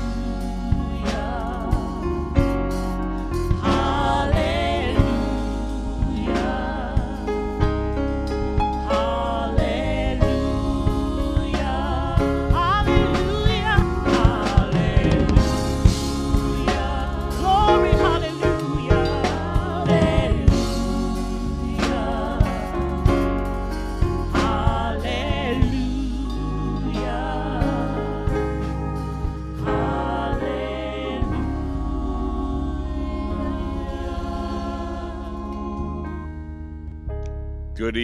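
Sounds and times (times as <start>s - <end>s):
women singing gospel: 0.0s - 36.5s
instrumental accompaniment: 0.0s - 38.0s
drum hits: 0.7s - 25.9s.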